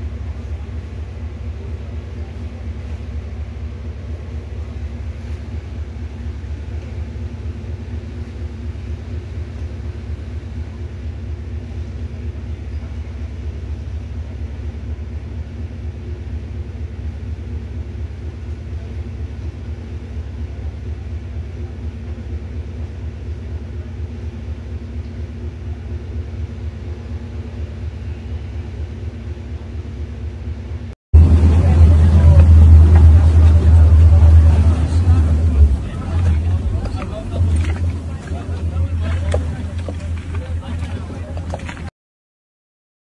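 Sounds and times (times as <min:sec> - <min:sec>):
engine idling: 0:00.0 - 0:41.9.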